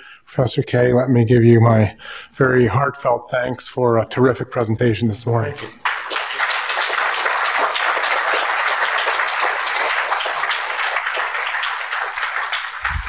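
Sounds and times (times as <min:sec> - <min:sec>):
audience applauding: 0:05.8 - 0:13.0.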